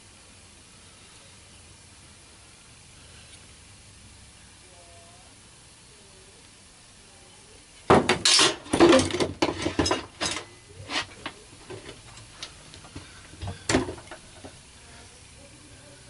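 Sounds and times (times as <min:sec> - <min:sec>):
metal tools clinking on workbench: 0:08.1 - 0:11.2.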